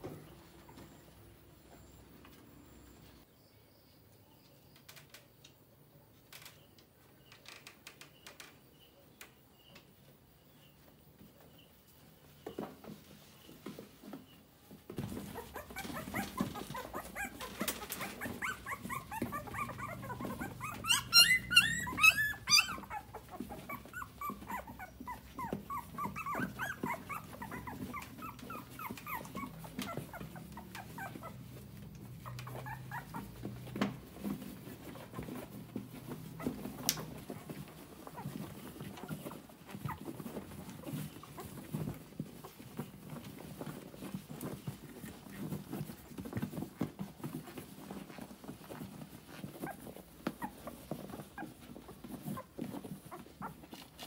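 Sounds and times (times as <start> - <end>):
dog whimpering in high squeaks: 15.2 - 31.6, 32.2 - 33.4.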